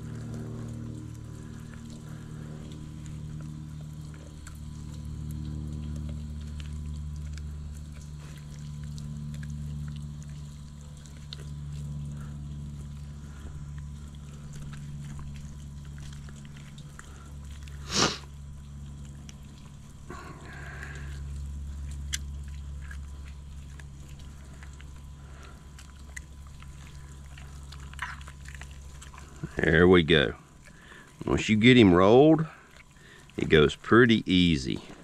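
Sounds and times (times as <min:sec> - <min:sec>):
steady low hum: 0:00.0 - 0:35.0
wet fish flesh handling: 0:00.0 - 0:35.0.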